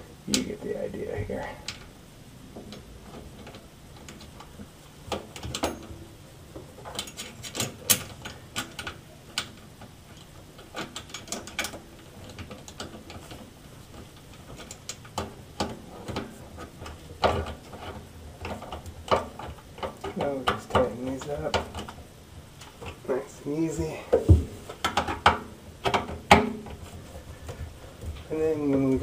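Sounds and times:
plastic threads clicking and scraping: 0:06.5 - 0:29.0
plastic pipe knocking: 0:24.1 - 0:26.7.

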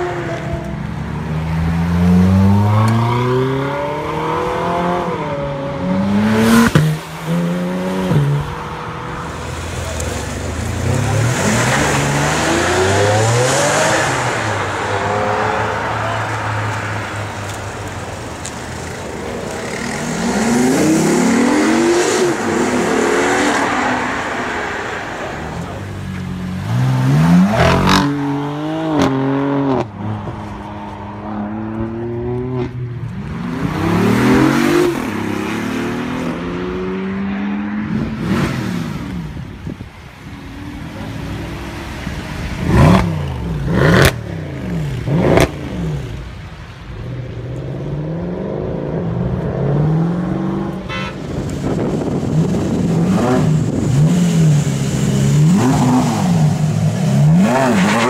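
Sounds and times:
sports car engines revving: 0:00.0 - 0:58.0.

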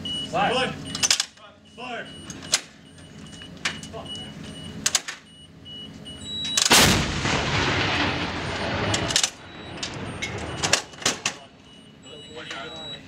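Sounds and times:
howitzer firing boom: 0:06.7 - 0:11.6.

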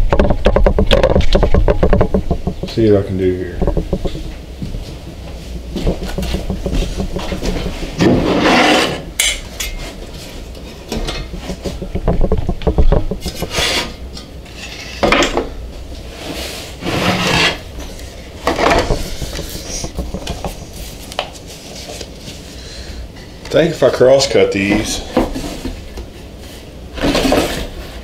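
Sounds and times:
small wooden knocks: 0:00.0 - 0:08.2, 0:10.9 - 0:13.8, 0:18.4 - 0:21.4.

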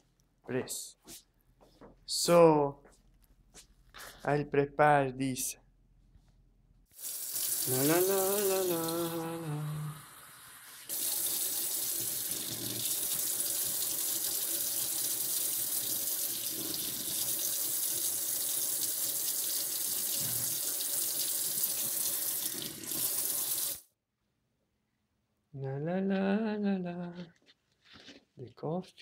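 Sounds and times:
tap water running into sink: 0:07.0 - 0:09.4, 0:10.8 - 0:23.8
water splashing on moka pot: 0:10.8 - 0:23.8.

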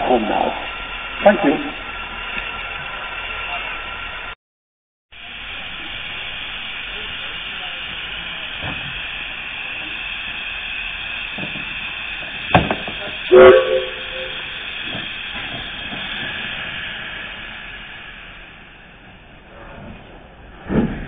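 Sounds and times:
steam hissing: 0:00.0 - 0:04.4, 0:05.2 - 0:21.0
steam whistle toot: 0:13.3 - 0:14.6.

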